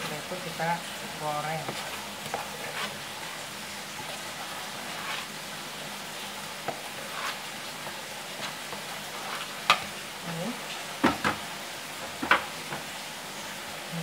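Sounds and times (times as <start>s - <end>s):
spoon stirring batter squelching: 0.0s - 10.8s.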